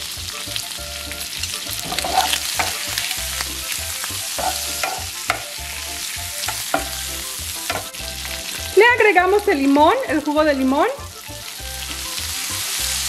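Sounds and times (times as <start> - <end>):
shrimp sizzling in a pan: 0.0 - 13.0
utensil stirring in a pan: 1.7 - 8.7.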